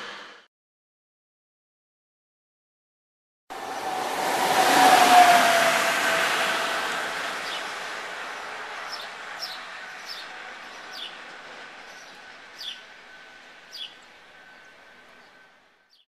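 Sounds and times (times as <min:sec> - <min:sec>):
train passing: 0:03.5 - 0:16.0
birds chirping: 0:07.2 - 0:16.0.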